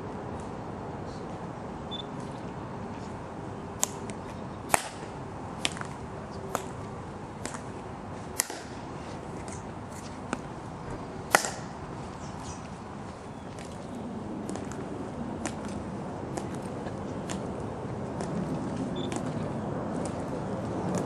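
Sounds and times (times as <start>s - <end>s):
outdoor background noise: 0.0s - 21.0s
shoes clicking on stone: 8.4s - 21.0s.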